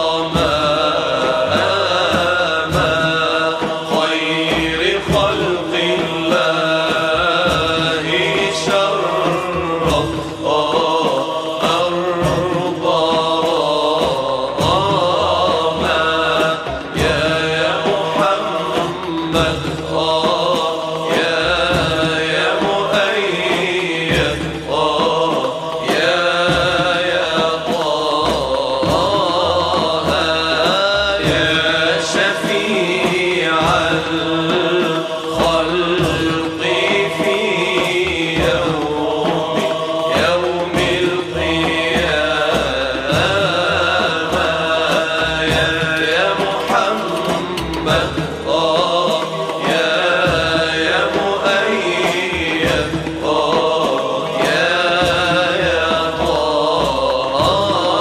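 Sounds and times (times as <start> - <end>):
voices chanting a devotional song: 0.0 - 58.0.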